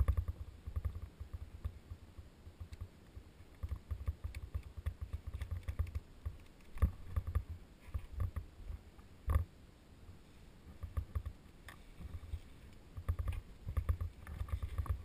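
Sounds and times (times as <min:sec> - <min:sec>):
small clicks: 0:00.0 - 0:09.5
rope and carabiners handled: 0:10.7 - 0:15.0.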